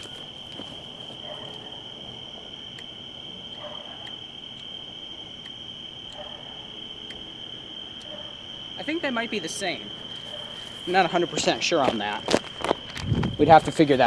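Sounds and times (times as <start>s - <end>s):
crickets chirping: 0.0s - 14.0s
faint ticks: 2.4s - 6.4s, 7.0s - 7.3s.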